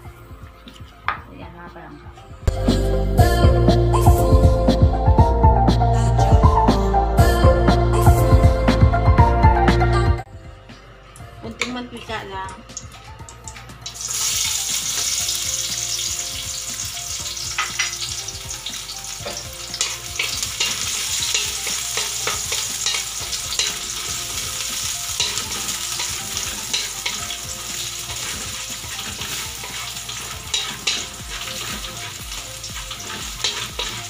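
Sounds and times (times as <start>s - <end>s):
garlic sizzling in hot oil: 12.8s - 34.0s
wooden spatula scraping a wok: 25.2s - 34.0s.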